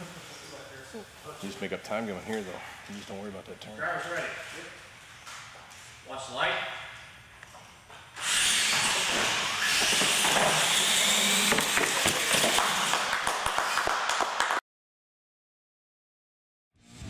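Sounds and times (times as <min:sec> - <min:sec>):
toy truck motors whining: 0:08.2 - 0:12.9.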